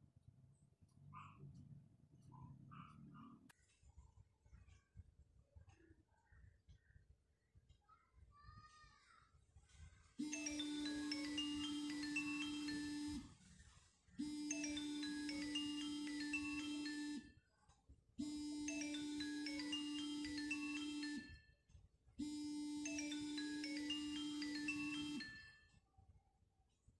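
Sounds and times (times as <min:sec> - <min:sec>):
phone ringtone chime melody: 0:10.2 - 0:13.4, 0:14.2 - 0:17.3, 0:18.2 - 0:21.6, 0:22.2 - 0:25.7.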